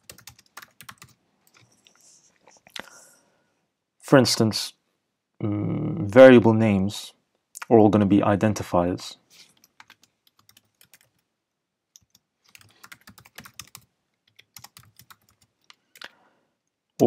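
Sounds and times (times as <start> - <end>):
computer keyboard typing: 0.0 - 1.7, 9.6 - 11.3, 12.0 - 16.1.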